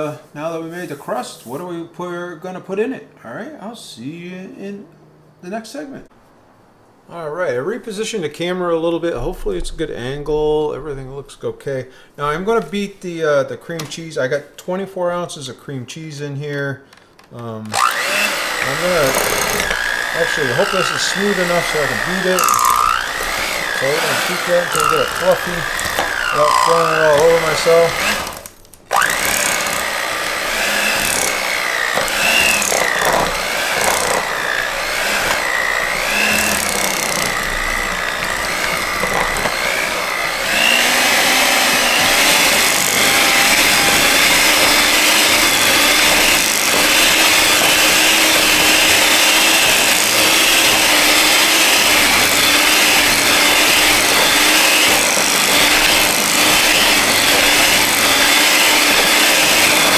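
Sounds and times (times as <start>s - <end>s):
electric hand mixer running: 17.7s - 59.9s.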